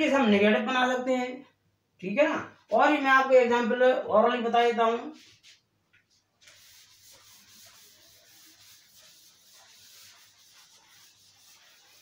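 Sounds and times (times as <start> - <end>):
duster rubbing on blackboard: 5.2 - 12.0.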